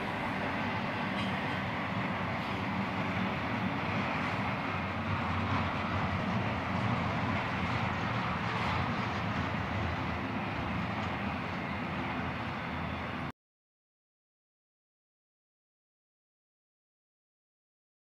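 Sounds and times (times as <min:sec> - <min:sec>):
freight train cars rolling past: 0:00.0 - 0:13.3.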